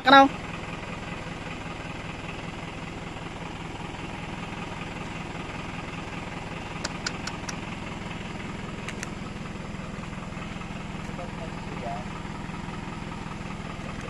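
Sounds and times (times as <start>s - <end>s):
truck engine idling steadily: 0.0s - 14.0s
sharp clicks: 6.7s - 7.7s, 8.8s - 9.2s.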